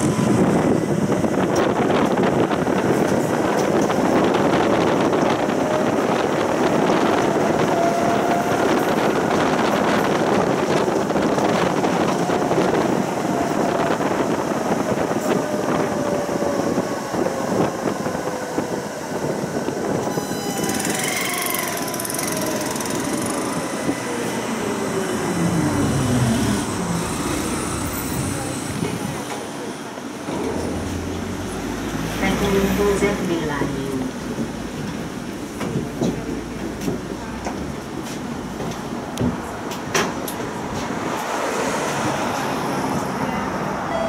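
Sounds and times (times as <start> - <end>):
tram wheels rumbling on track: 0.0 - 44.0
short high-pitched squeal: 20.1 - 23.4
traction motor whine: 20.2 - 28.1.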